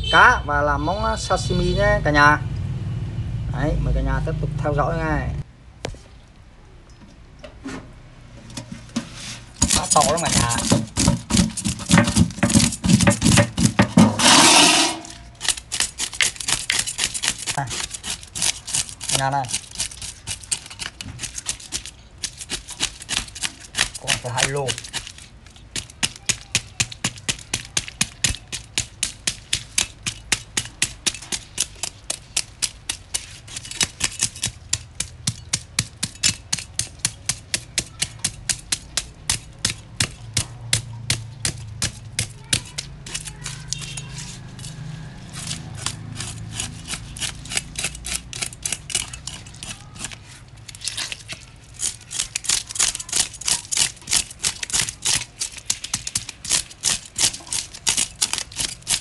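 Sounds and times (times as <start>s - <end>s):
knife strokes cleaning fish: 9.1s - 59.0s.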